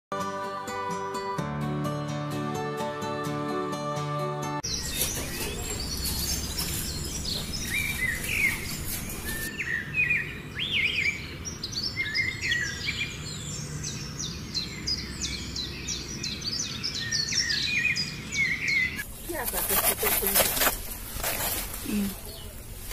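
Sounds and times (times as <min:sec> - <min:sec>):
birds chirping and singing: 0:04.6 - 0:22.6.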